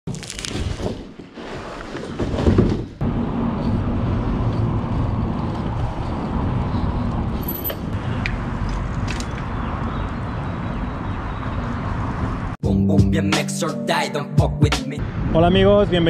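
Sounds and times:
road and wind noise: 2.4s - 12.6s, 15.0s - 16.0s.

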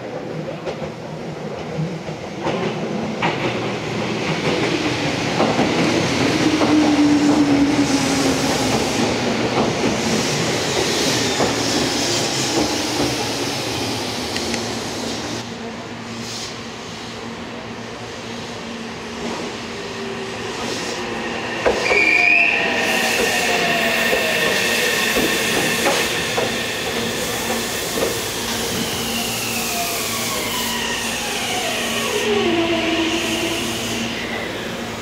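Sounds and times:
electric train pulling in: 2.9s - 35.0s
high wheel squeal: 21.7s - 28.0s.

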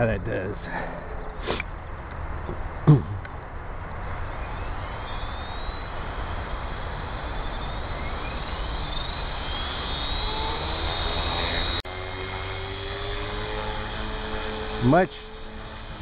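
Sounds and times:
rotor whoosh: 4.0s - 16.0s
rc helicopter motor whine: 4.2s - 16.0s.

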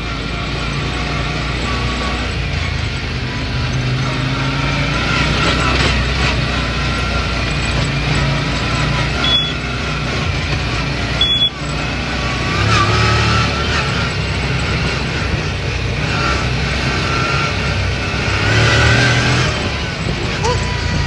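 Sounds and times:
buggy engine running: 0.0s - 21.0s
high-pitched beeps: 9.2s - 9.6s, 11.2s - 11.6s.

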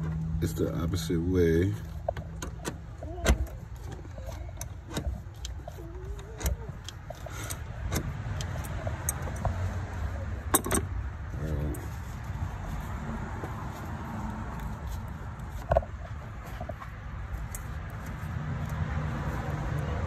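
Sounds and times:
metallic clicks and knocks of parts: 2.0s - 9.6s, 10.4s - 11.0s.

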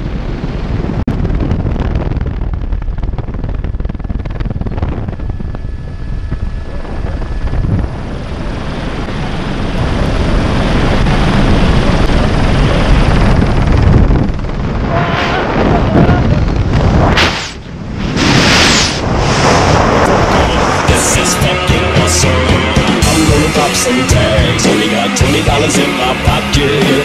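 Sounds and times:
wind buffeting microphone: 0.0s - 21.8s
helicopter rotor and engine: 2.3s - 17.0s.

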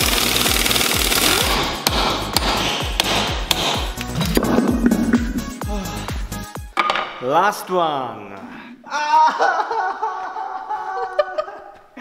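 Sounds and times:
pneumatic impact wrench hammering: 0.0s - 4.5s.

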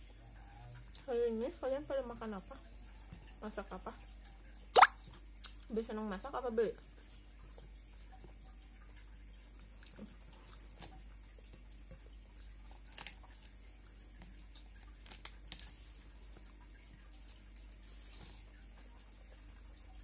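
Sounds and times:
wet mouth and finger sounds: 4.8s - 5.6s.

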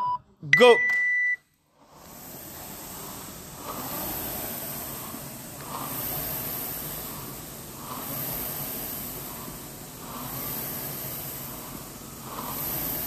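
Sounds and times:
rowing machine fan whooshing: 1.7s - 13.0s.

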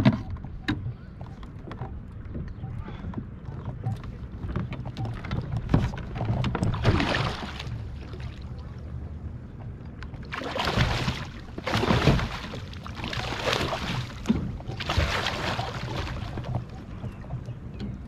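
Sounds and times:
water splashing and sloshing: 0.0s - 18.0s
wind rumble on microphone: 0.0s - 18.0s.

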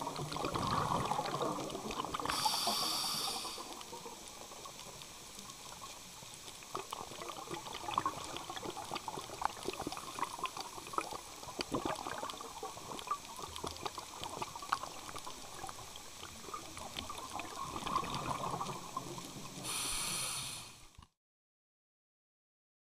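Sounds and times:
gurgling water: 0.0s - 20.7s
rushing hiss: 2.3s - 3.8s, 19.6s - 20.9s.

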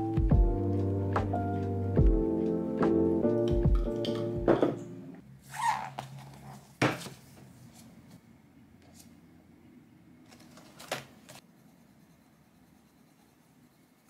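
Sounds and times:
background music: 0.0s - 5.2s.

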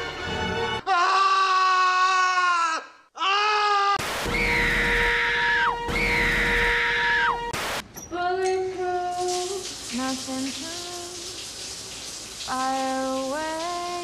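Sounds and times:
woman screaming: 0.9s - 7.4s.

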